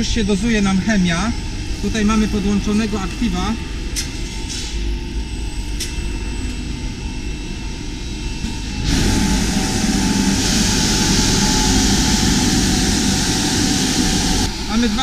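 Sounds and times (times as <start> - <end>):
carpet scrubbing machine humming: 7.6 - 15.0.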